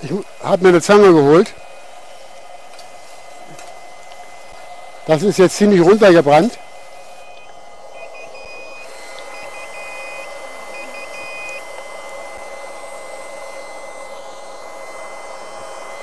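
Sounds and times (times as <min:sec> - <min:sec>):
smoke generator blower running: 0:00.0 - 0:16.0
short high beeps: 0:07.2 - 0:11.6.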